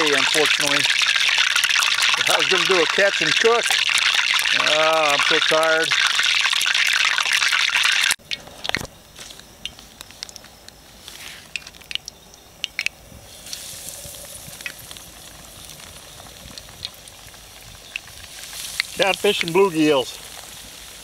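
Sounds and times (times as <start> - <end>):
oil sizzling in a pan: 0.0 - 8.2, 13.3 - 21.0
oil popping and crackling: 0.0 - 8.9, 9.6 - 21.0.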